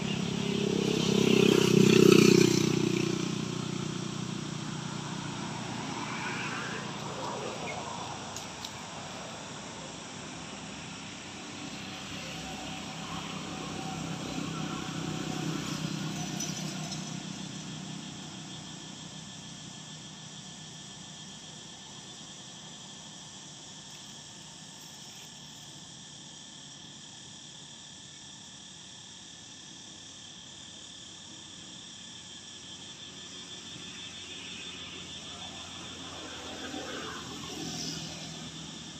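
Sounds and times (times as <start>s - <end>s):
high insect calls: 0.0s - 38.9s
low engine-like rumble: 2.6s - 26.0s.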